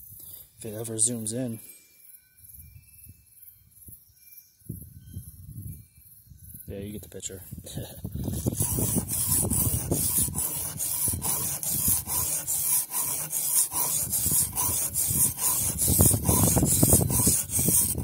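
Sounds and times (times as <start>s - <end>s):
knife scraping on whetstone: 8.3s - 18.0s.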